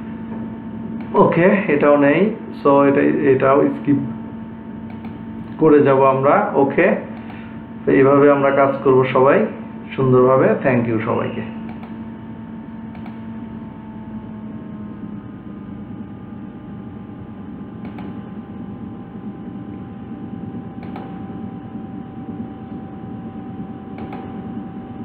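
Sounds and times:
faint steady whine: 0.0 - 25.0
low room hum and hiss: 0.0 - 25.0
faint short clicks: 12.9 - 13.2.

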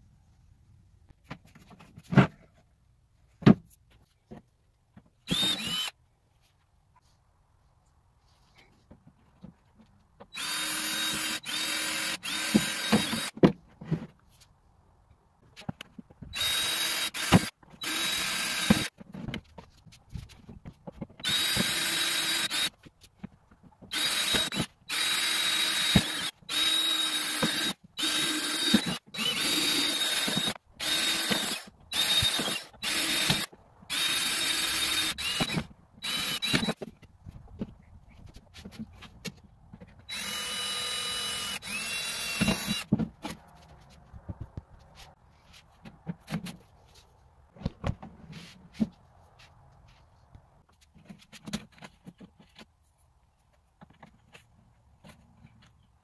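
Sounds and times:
cordless drill whining: 5.3 - 5.9, 10.3 - 13.4, 16.3 - 18.9, 21.2 - 22.8, 23.9 - 36.8, 40.1 - 42.9.

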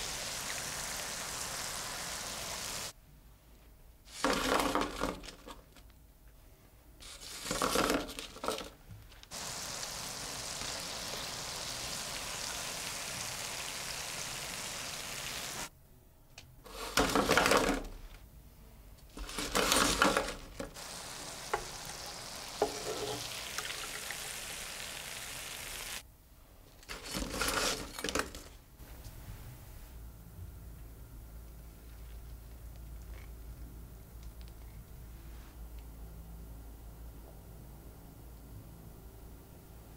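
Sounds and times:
dough sizzling in hot oil: 0.0 - 3.0, 9.3 - 15.7, 20.8 - 26.0.

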